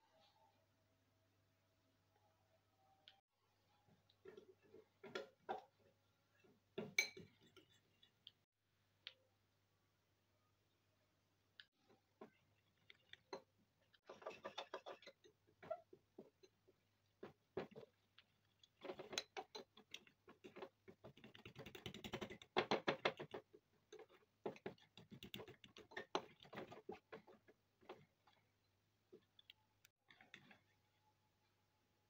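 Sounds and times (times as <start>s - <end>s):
fork whisking in ceramic bowl: 14.0s - 15.9s.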